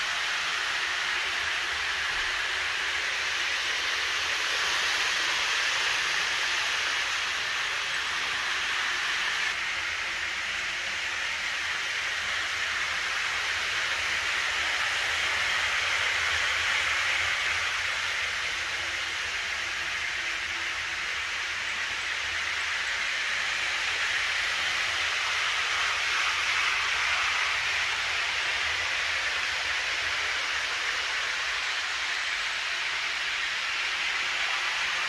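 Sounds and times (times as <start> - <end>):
model train wheels whirring: 0.0 - 35.0.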